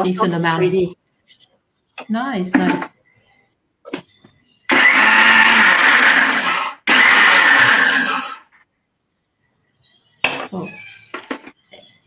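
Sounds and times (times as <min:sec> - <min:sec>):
electric blender running: 0:04.7 - 0:08.4.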